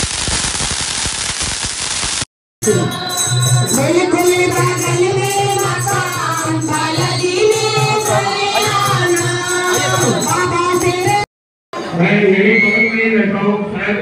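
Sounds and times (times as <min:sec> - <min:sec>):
group singing devotional song: 0:02.6 - 0:11.3
tambourine jingling: 0:02.6 - 0:11.3.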